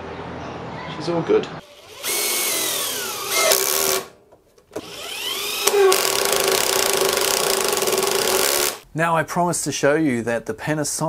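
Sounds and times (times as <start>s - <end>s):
impact driver driving screw into wood: 2.0s - 8.8s.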